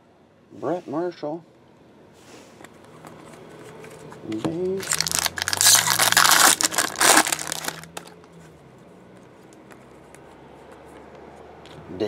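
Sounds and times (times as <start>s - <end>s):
foil wrapper crinkling: 4.8s - 8.2s.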